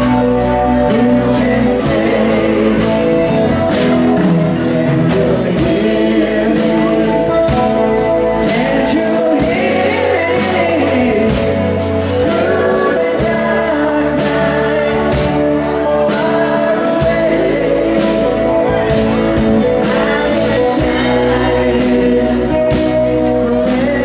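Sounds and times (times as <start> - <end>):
strummed acoustic guitars: 0.0 - 24.0
woman singing: 8.4 - 19.0, 19.7 - 24.0.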